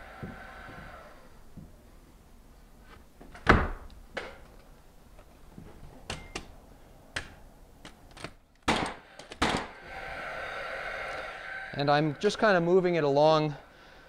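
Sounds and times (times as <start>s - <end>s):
framing nailer shots: 8.6s - 9.8s.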